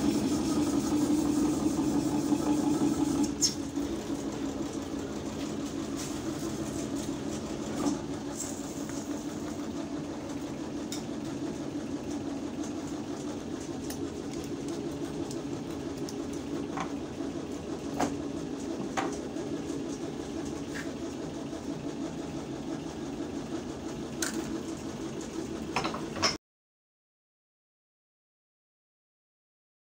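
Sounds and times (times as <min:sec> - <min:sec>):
machine hum: 0:00.0 - 0:26.4.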